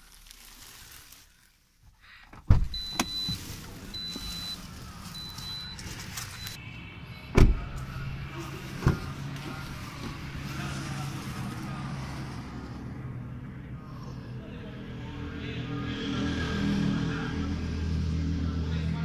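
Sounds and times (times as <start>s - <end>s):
car door shutting: 2.4s - 3.5s, 7.3s - 7.7s
high warning chime beeping: 2.8s - 6.6s
thump: 7.4s - 7.6s.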